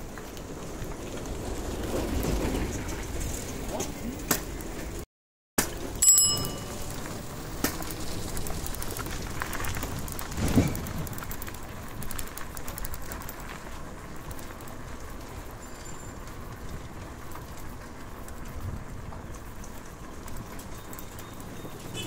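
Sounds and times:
bicycle road noise: 0:00.0 - 0:05.0, 0:05.6 - 0:22.0
metallic ringing tone: 0:06.0 - 0:07.3.

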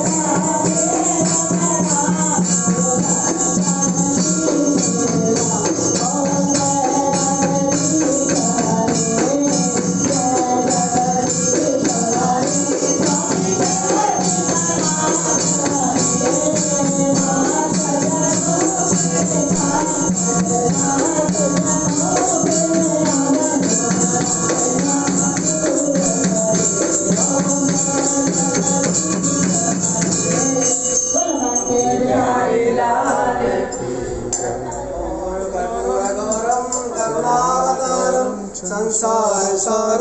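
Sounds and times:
metallic jingle: 0:00.0 - 0:32.8
voices singing: 0:00.0 - 0:40.0.

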